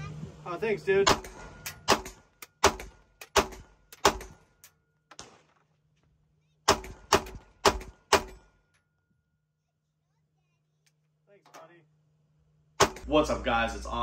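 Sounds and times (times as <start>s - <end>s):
pistol shots: 1.1s - 4.4s, 6.7s - 8.4s, 12.8s - 13.1s.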